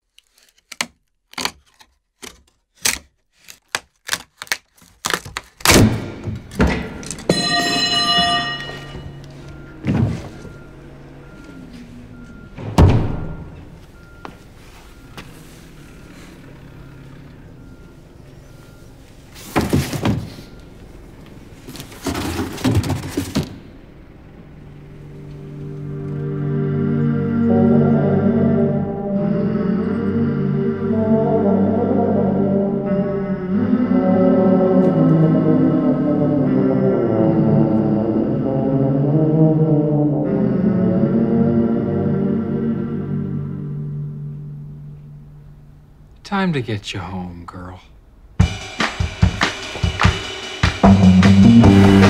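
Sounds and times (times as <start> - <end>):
cardboard parcels scraping and thumping: 9.5 - 10.7, 19.3 - 20.7, 21.5 - 23.6.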